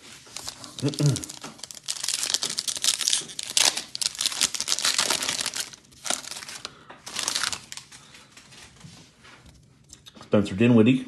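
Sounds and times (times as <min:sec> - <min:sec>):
foil wrapper tearing and crinkling: 0:00.0 - 0:08.1.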